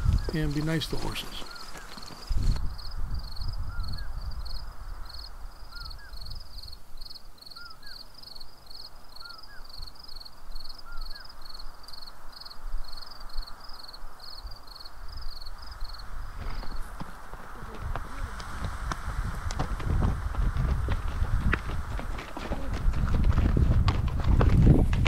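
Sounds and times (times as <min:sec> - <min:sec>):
wind buffeting microphone: 0:00.0 - 0:06.8, 0:15.0 - 0:25.0.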